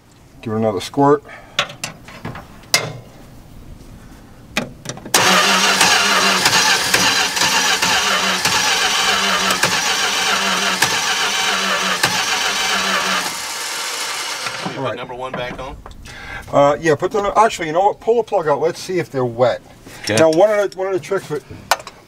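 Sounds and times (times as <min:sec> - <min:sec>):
engine cranking on starter: 0:05.1 - 0:14.8.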